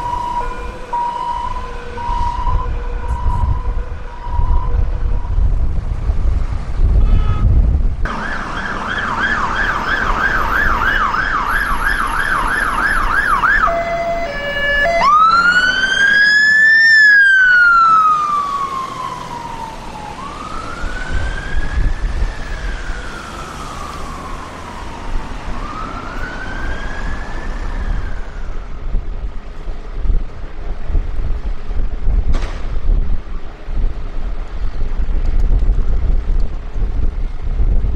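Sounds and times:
fire engine siren yelp: 0.0s - 5.5s, 8.1s - 28.9s
siren slow wail: 0.0s - 5.6s, 8.1s - 28.8s
engine and road rumble: 0.0s - 37.9s.

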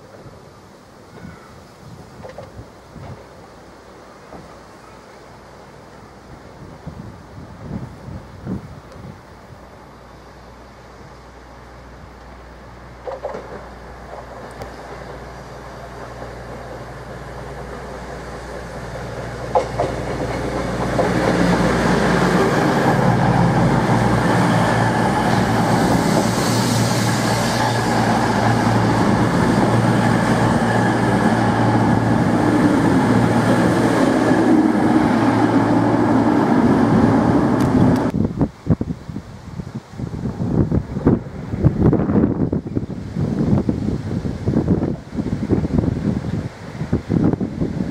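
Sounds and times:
train rumbling past on rails: 0.0s - 38.6s, 39.6s - 47.9s
diesel train engine hum: 2.4s - 38.3s.

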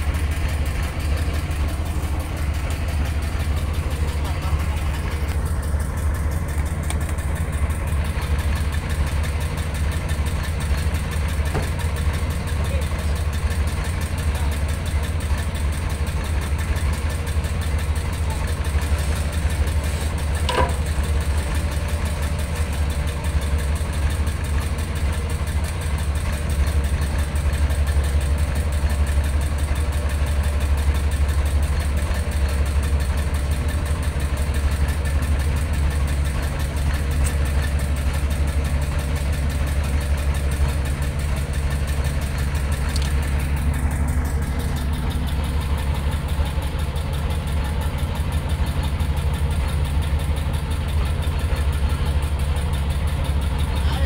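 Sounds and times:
boat engine idling: 0.0s - 54.0s.

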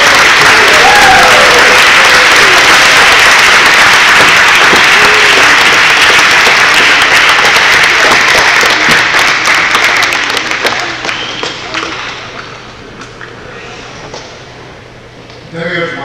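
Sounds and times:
audience applause: 0.0s - 12.0s.

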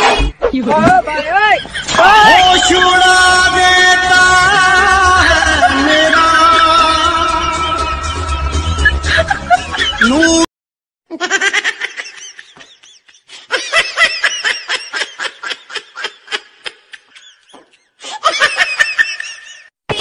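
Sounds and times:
hearty human laughter: 5.1s - 7.0s, 8.6s - 10.5s, 11.1s - 19.7s.

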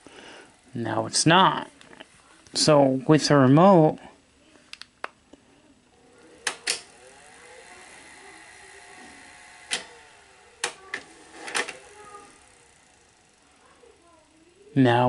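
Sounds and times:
tape motor whirring: 5.7s - 14.7s
tape mechanism clicks: 6.2s - 13.1s.

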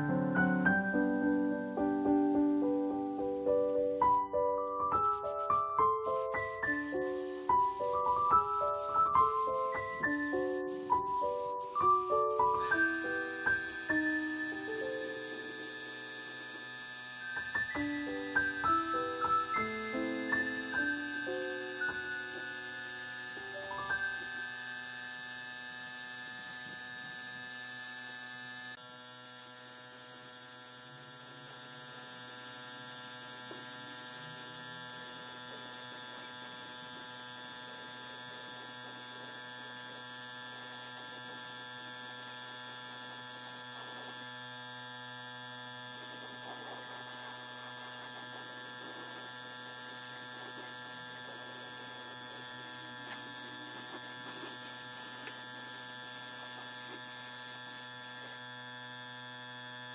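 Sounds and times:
spray gun air hiss: 4.9s - 28.5s, 29.2s - 44.4s, 45.9s - 58.5s.

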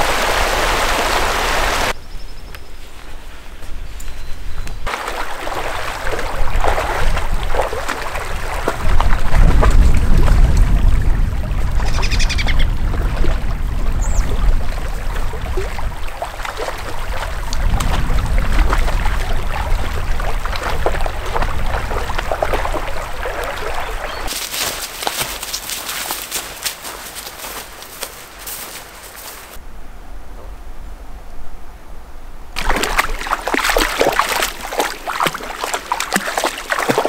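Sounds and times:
running stream: 0.0s - 2.0s, 4.7s - 29.6s, 32.6s - 37.0s
splashing steps in creek: 0.0s - 2.0s, 4.6s - 29.6s, 32.6s - 37.0s
low rumble: 8.9s - 16.0s, 16.8s - 23.3s
bird calling: 11.8s - 12.7s, 23.0s - 24.4s.

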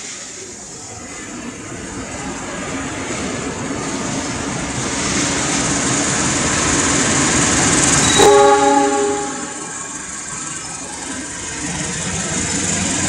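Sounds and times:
train wheels rumbling on rails: 0.0s - 13.0s
loud pitched tone: 8.0s - 11.1s.

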